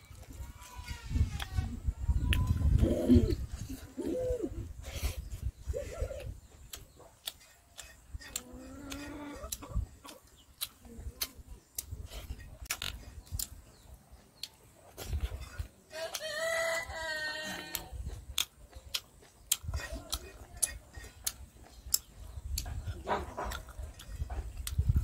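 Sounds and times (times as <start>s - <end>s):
chewing and lip-smacking: 6.1s - 16.3s, 17.7s - 25.0s
rooster crowing: 16.0s - 17.8s.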